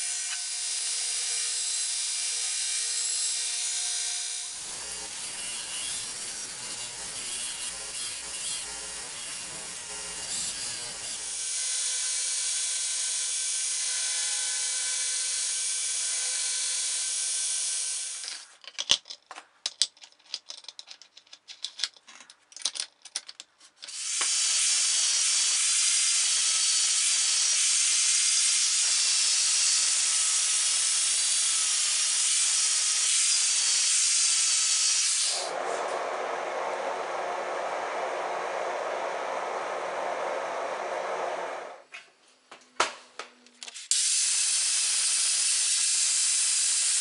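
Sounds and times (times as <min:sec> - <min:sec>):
belt grinder grinding steel: 0:00.0 - 0:18.4, 0:23.9 - 0:36.1.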